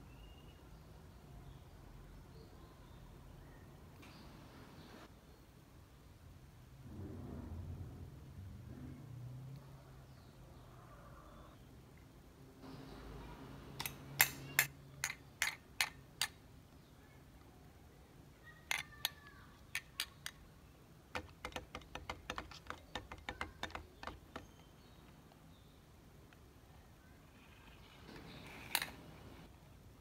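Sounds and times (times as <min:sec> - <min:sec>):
plastic toys clacking on table: 0:13.8 - 0:16.4, 0:18.6 - 0:20.4, 0:21.1 - 0:24.6, 0:28.1 - 0:29.1.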